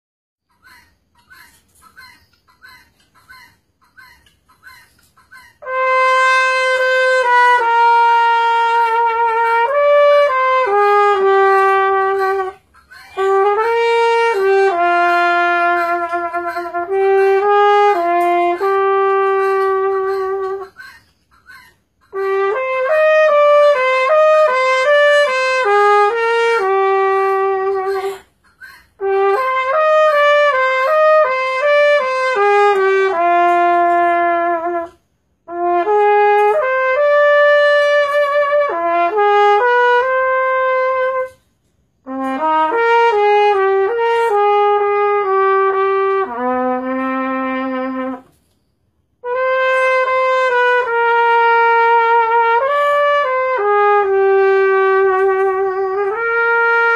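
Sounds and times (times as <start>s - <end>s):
solo trumpet slow melody: 5.6s - 20.7s, 22.1s - 28.2s, 29.0s - 41.4s, 42.0s - 48.6s, 49.2s - 56.9s.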